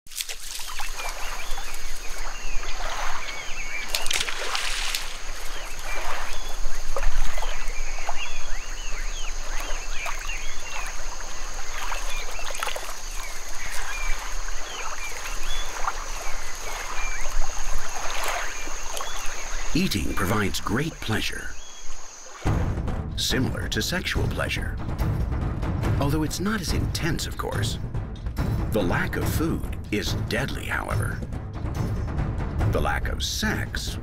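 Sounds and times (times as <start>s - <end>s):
water splashing and trickling: 0.0s - 34.0s
high insect drone: 0.5s - 24.6s.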